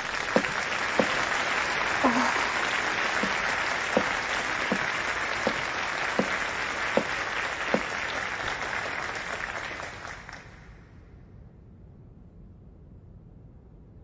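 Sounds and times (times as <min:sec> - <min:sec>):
footsteps on stage: 0:00.0 - 0:08.3
audience applauding: 0:00.0 - 0:10.8.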